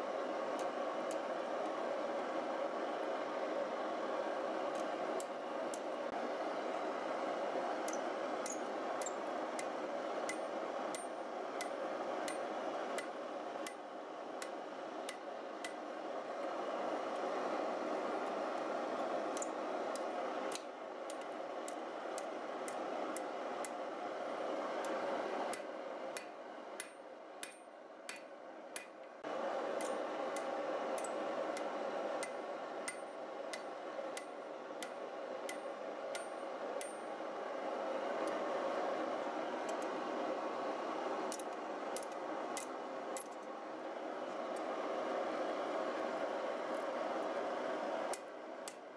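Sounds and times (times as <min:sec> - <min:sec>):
hammer striking steel on anvil: 0:26.2 - 0:29.0.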